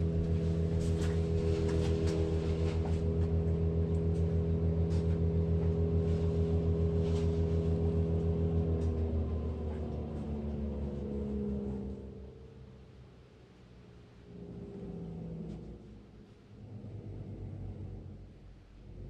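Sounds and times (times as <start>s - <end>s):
oil burner hum and pulsing: 0.0s - 19.0s.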